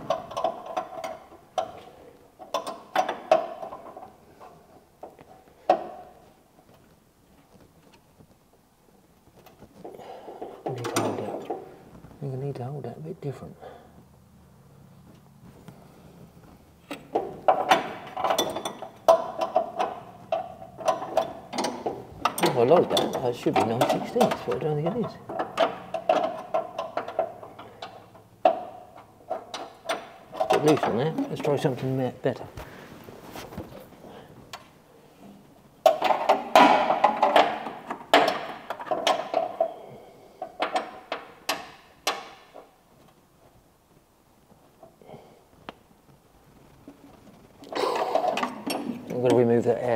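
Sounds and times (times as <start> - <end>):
metal spanner clinking: 17.5 - 31.1.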